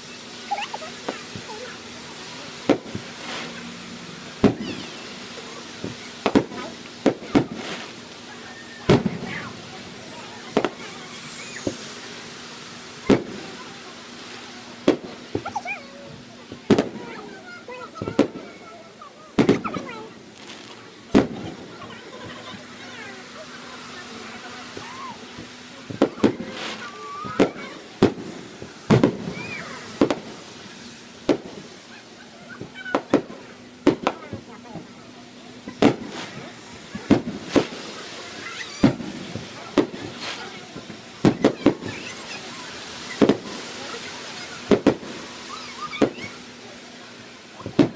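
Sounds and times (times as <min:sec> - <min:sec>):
fireworks shells bursting: 0:00.0 - 0:47.9.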